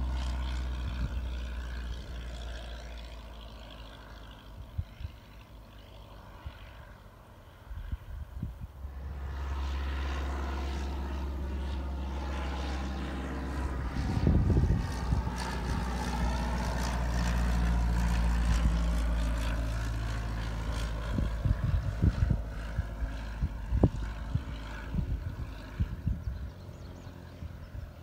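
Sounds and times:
propeller plane engine droning: 0.0s - 28.0s
wind buffeting microphone: 0.4s - 2.4s, 4.6s - 5.4s, 7.6s - 28.0s.

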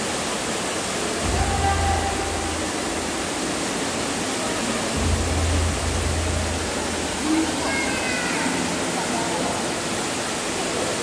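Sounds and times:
rushing hiss of falling water: 0.0s - 11.0s
deep low hum: 1.2s - 7.6s.

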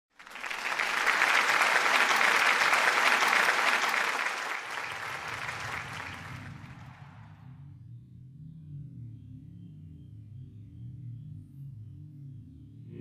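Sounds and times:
crowd applauding: 0.1s - 7.3s.

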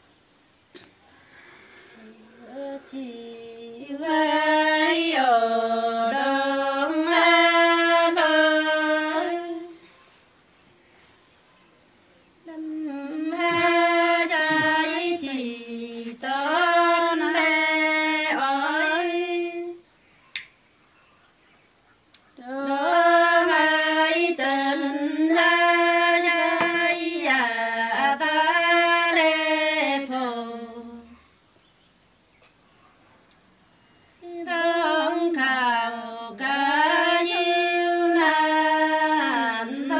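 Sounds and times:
woman singing unaccompanied: 2.0s - 9.8s, 12.4s - 19.9s, 22.4s - 31.2s, 34.2s - 39.9s.

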